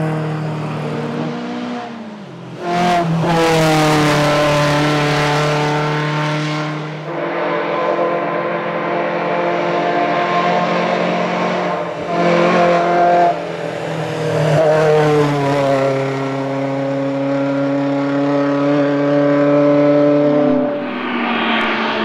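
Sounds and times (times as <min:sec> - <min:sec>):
car engine revving hard: 0:00.0 - 0:07.1.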